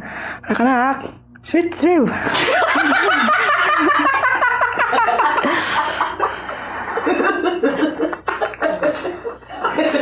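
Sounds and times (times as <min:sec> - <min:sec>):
men laughing hard: 0:02.3 - 0:10.0.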